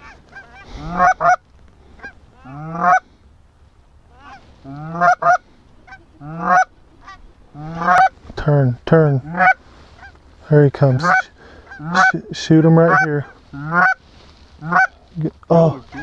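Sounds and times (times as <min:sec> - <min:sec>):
goose honking: 0:00.0 - 0:01.4, 0:02.0 - 0:03.0, 0:04.1 - 0:08.1, 0:09.2 - 0:10.2, 0:10.8 - 0:14.0, 0:14.6 - 0:15.0, 0:15.7 - 0:16.0.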